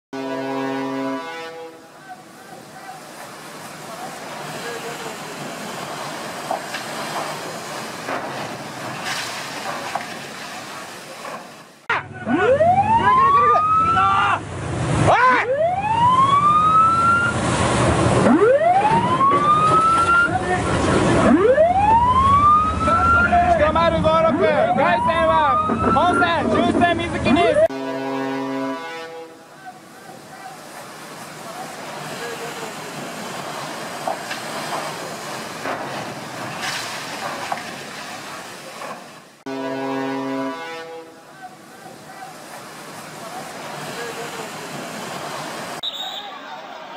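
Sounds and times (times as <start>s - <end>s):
siren whooping: 12.2s - 14.3s, 15.3s - 17.4s, 18.2s - 20.4s, 21.2s - 23.6s, 24.3s - 26.6s
engine and water rushing: 14.4s - 23.7s.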